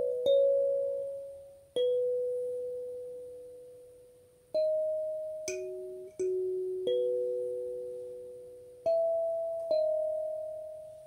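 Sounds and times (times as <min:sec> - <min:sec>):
kalimba notes ringing: 0:00.0 - 0:03.9, 0:04.6 - 0:11.0.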